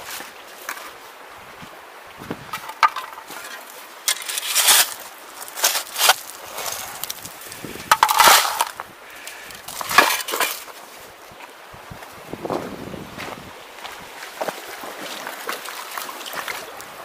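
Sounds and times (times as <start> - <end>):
stones clinking on blade: 2.6 - 7.2
shovel digging gravel: 2.6 - 8.8, 9.6 - 10.8.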